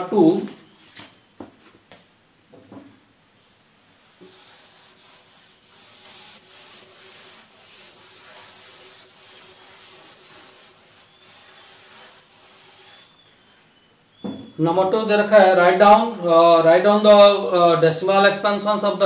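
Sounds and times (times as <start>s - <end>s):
duster scrubbing chalkboard: 4.0s - 13.7s.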